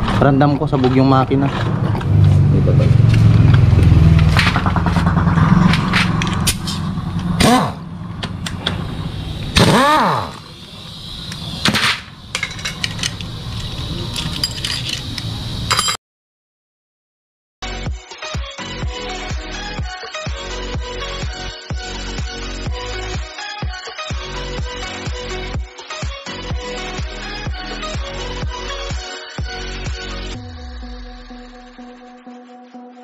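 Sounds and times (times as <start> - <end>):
low engine rumble: 0.0 - 15.7
metal tools clinking and scraping: 12.3 - 16.0.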